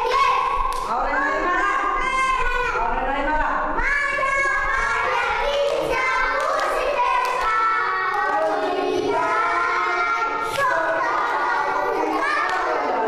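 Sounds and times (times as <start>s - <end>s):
hand claps: 0.7s - 0.9s, 5.6s - 8.7s, 10.5s - 11.3s, 12.2s - 13.0s
children singing: 3.8s - 13.0s.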